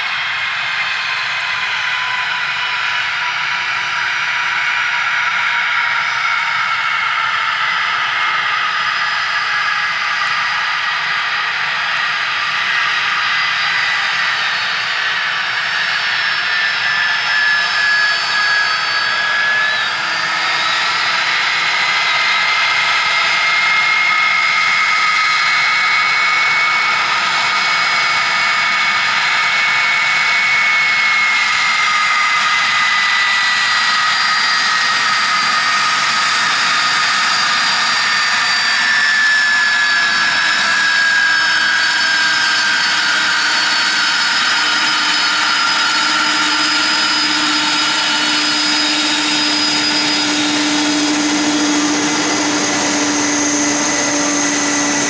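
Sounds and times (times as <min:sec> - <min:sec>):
jet engine whine: 0:00.0 - 0:55.0
lower hum: 0:46.0 - 0:55.0.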